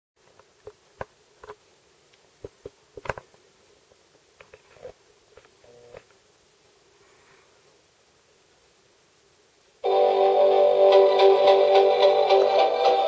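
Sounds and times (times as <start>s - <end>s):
faint clicks and taps: 0.2s - 6.2s.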